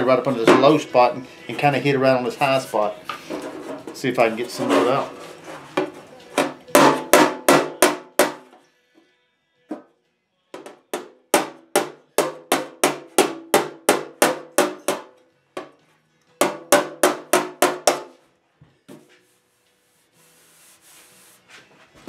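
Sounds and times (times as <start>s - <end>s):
hammer striking steel fender: 5.8s - 8.5s, 10.6s - 15.8s, 16.4s - 18.2s
hand rubbing over metal panel: 19.2s - 21.7s.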